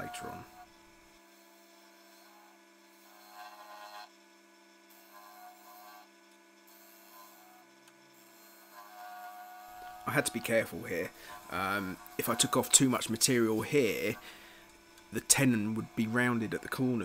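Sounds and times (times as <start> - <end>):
wood lathe humming: 0.0 - 4.2, 6.7 - 17.0
turning tool scraping wood: 2.2 - 4.1, 8.2 - 17.0.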